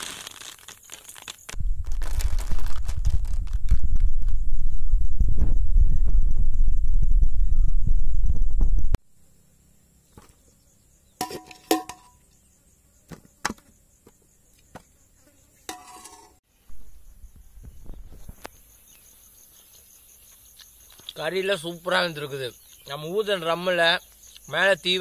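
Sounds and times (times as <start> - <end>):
insects chirping: 0.0 - 8.4, 9.0 - 25.0
low microphone rumble: 1.6 - 9.0.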